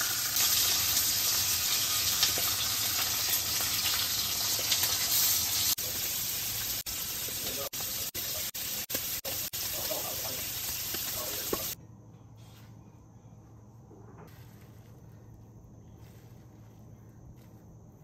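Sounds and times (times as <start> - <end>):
pancakes sizzling in oil: 0.0 - 11.8
faint low hum: 11.8 - 18.0.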